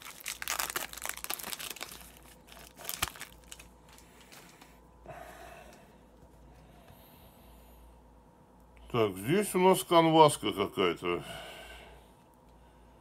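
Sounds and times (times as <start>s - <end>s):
cards rustling: 0.0s - 4.7s
foil wrapper crinkling and tearing: 0.0s - 4.7s.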